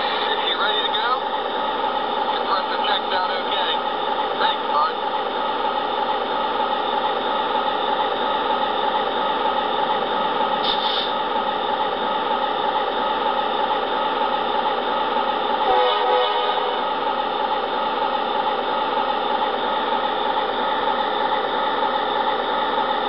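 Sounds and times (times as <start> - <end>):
diesel engine idle through small speaker: 0.1 - 1.3, 2.2 - 5.1.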